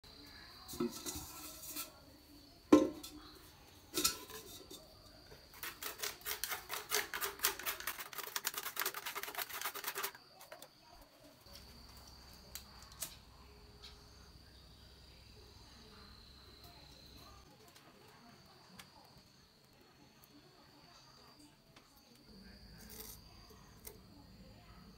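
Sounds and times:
metal pot clanking down: 0.7s - 1.9s, 2.7s - 3.2s, 3.9s - 4.9s
stick raking charcoal ash: 0.8s - 2.0s, 4.0s - 10.6s, 22.7s - 23.3s.

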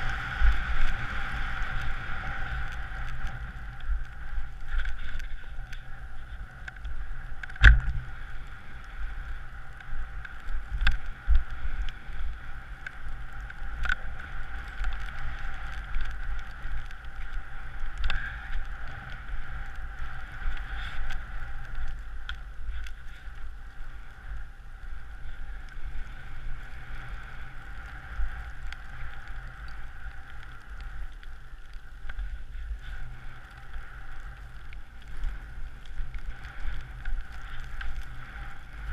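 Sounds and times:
skis gliding over snow: 0.0s - 38.9s
wind rumbling on microphone: 0.0s - 38.9s.

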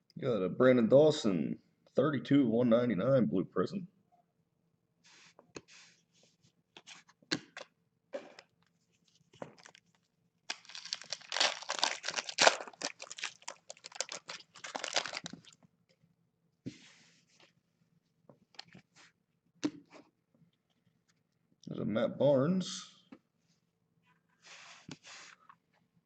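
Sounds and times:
cards clicking and rustling: 10.5s - 15.5s
wrapper tearing and crinkling: 10.5s - 15.6s.

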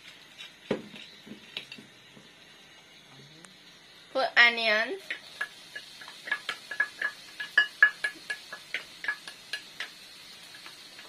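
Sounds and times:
steel bowl clinking: 5.1s - 9.9s.

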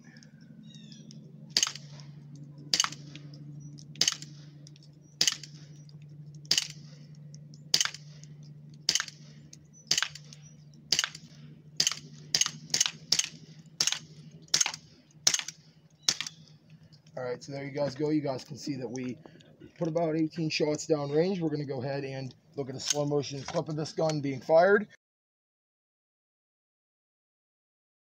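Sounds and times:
bb pistol shots popping: 1.5s - 7.0s, 7.6s - 16.6s.

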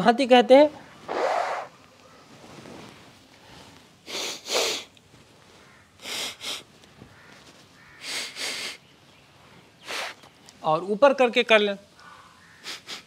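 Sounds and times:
sharp blasts of air through nose: 1.0s - 1.8s, 4.0s - 4.9s, 6.0s - 6.7s, 8.0s - 8.8s, 9.8s - 10.3s, 12.6s - 13.0s.

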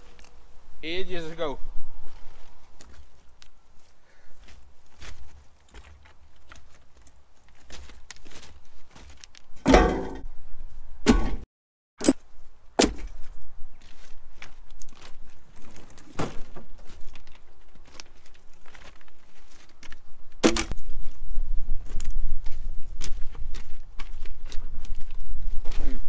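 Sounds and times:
footsteps: 1.8s - 11.4s, 12.9s - 26.0s
firewood knocking and thudding: 9.7s - 10.3s, 11.0s - 11.4s, 12.8s - 13.2s, 20.4s - 20.8s.

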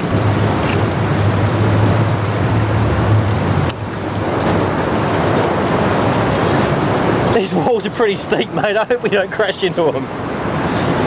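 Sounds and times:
outboard motor humming: 0.0s - 11.0s
rushing river water: 0.0s - 11.0s.

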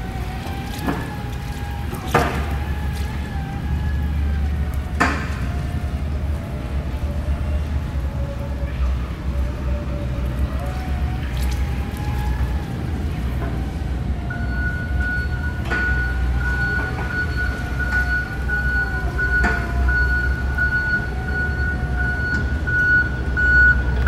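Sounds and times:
electric forklift whine: 0.0s - 24.0s
reverse alarm beeping: 14.3s - 24.0s.

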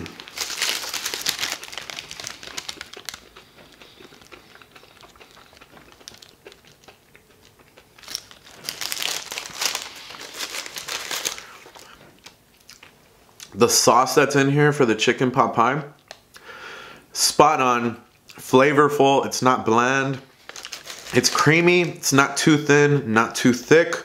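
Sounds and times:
paper sleeve crinkling: 0.0s - 3.4s, 8.0s - 12.0s, 20.3s - 21.9s.

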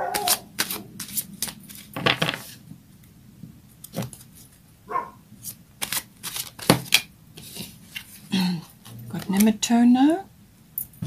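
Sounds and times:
cards shuffling with paper snaps: 0.0s - 2.6s, 3.8s - 4.6s, 5.4s - 8.2s.

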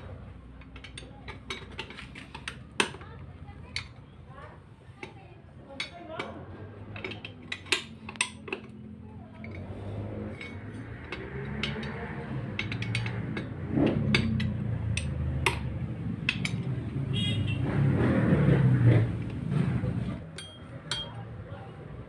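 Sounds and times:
low engine rumble: 0.0s - 22.0s
steel tool clinking on gears: 9.4s - 16.7s, 20.3s - 21.3s.

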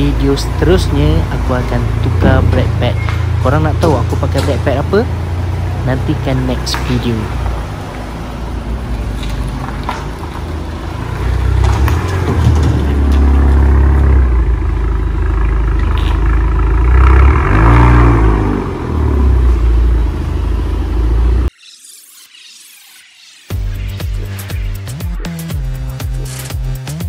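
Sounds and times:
car engine revving: 0.0s - 21.5s.

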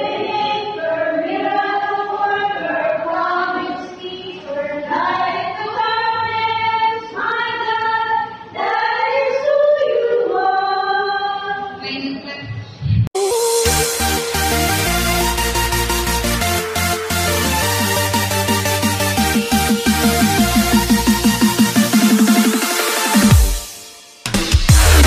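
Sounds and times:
mixed choir singing: 0.0s - 11.3s.

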